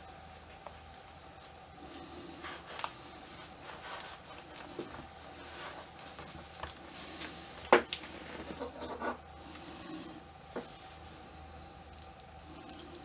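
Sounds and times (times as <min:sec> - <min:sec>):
cloth rustling: 0:02.4 - 0:08.6.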